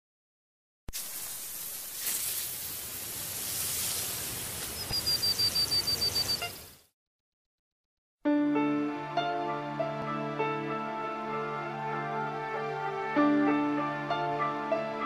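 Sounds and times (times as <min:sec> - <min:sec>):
wind: 0:01.8 - 0:06.8
rapid high chirps: 0:04.8 - 0:06.8.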